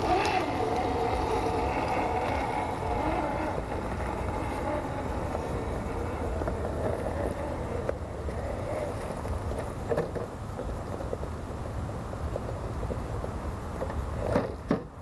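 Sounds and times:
rc car motor whining: 0.0 - 9.7.

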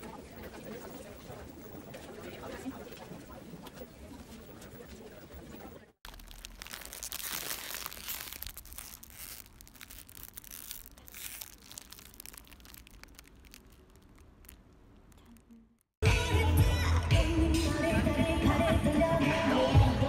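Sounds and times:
plastic bag crinkling: 6.0 - 15.9.

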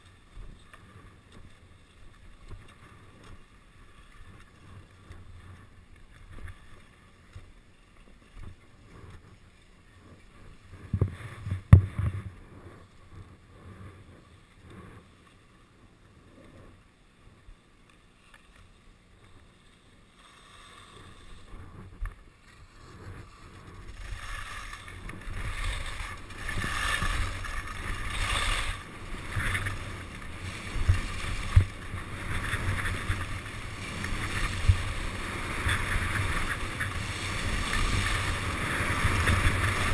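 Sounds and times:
skis scraping on snow: 0.0 - 15.6, 16.3 - 39.9
wind on microphone: 21.4 - 39.9.

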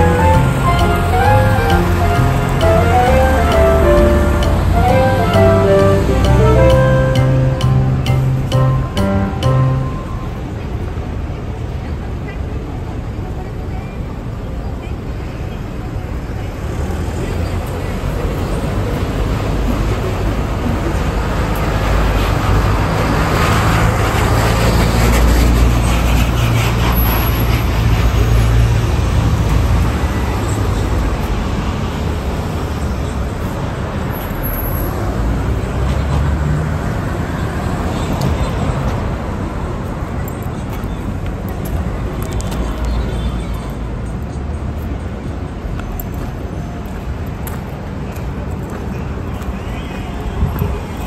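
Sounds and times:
vehicle engine passing: 0.0 - 10.4.

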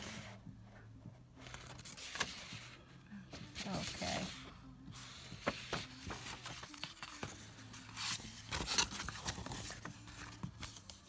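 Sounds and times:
paper rustling and crinkling: 1.4 - 2.8, 5.0 - 11.0.

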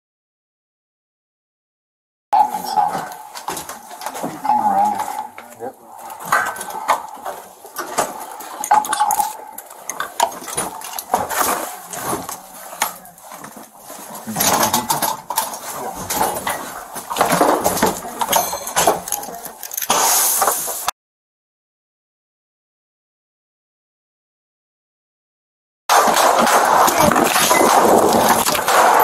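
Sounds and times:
handling noise: 2.4 - 20.9, 25.9 - 29.0
knocks and scrapes: 2.4 - 20.9, 25.9 - 29.0
tactical gear rustling and clinking: 2.4 - 20.9, 26.0 - 29.0.

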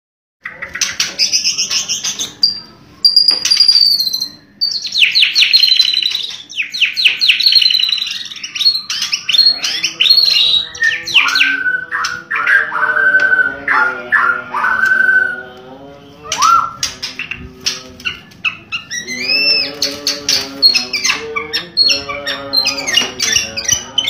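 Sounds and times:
bird song with clear whistles: 1.5 - 15.5, 16.2 - 17.4, 18.8 - 19.8.

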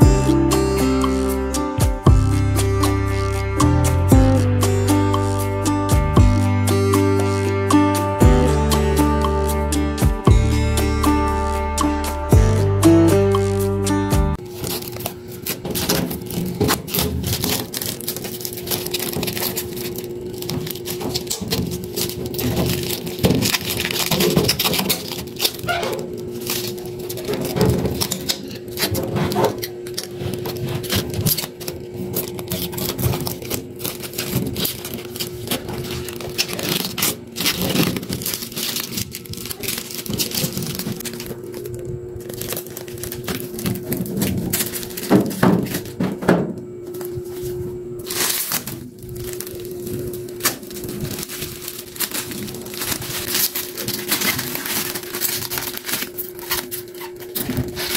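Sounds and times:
plastic film crinkling: 14.3 - 57.9.

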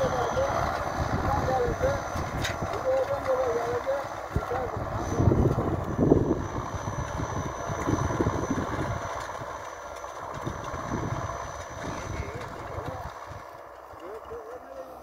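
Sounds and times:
wind rumbling on microphone: 0.0 - 3.0, 4.2 - 9.6, 10.2 - 13.5
distant tractor engine running: 0.0 - 15.0.

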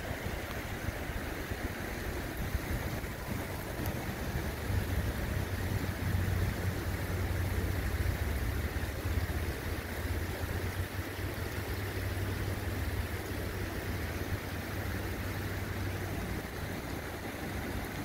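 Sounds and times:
river flowing over rocks: 0.0 - 18.0.

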